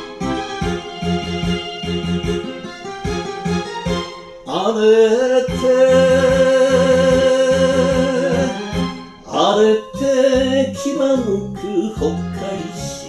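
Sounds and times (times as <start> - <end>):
band accompaniment: 0.0 - 4.7, 5.5 - 9.3.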